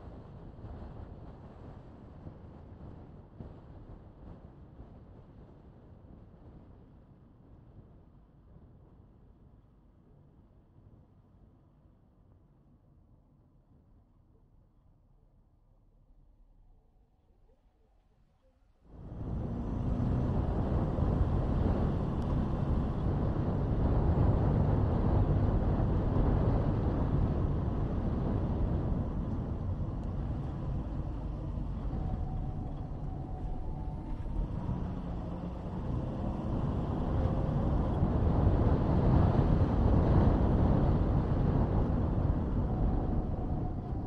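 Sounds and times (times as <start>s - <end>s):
car engine and tyre rumble: 18.7s - 44.0s.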